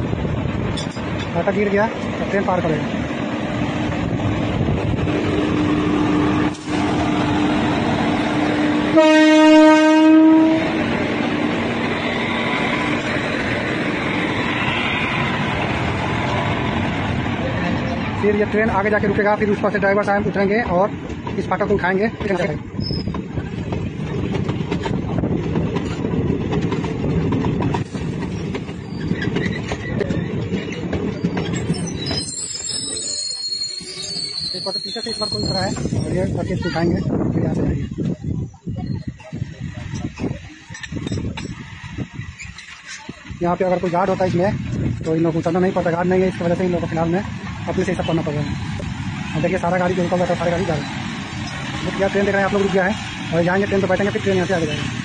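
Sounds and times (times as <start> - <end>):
train wheels rumbling on track: 0.0 - 55.0
locomotive droning: 3.2 - 18.2
train horn: 8.5 - 10.9
wheels clicking over rail joints: 20.0 - 32.4.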